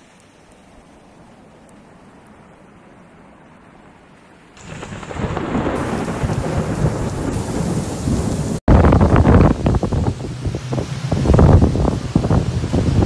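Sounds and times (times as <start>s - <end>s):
loud storm rumble: 4.6s - 13.0s.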